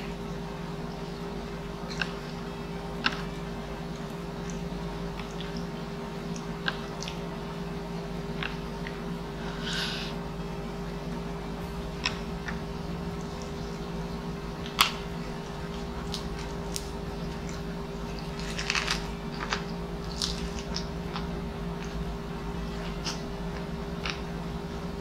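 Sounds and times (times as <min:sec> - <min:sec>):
steady low hum: 0:00.0 - 0:25.0
biting and chewing food: 0:01.8 - 0:05.7, 0:06.3 - 0:07.3, 0:08.2 - 0:09.9, 0:11.6 - 0:25.0
crisp clicks and crackles: 0:14.6 - 0:22.0.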